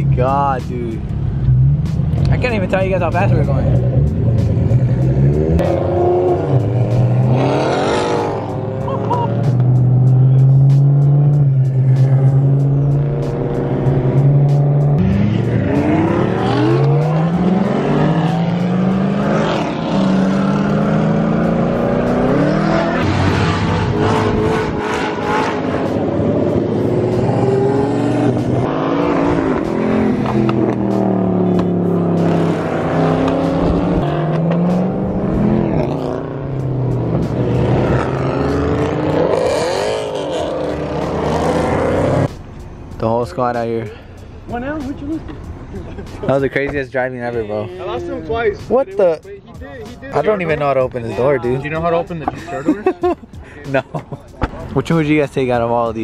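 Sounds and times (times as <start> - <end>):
sports car engines accelerating: 0.0 - 56.0.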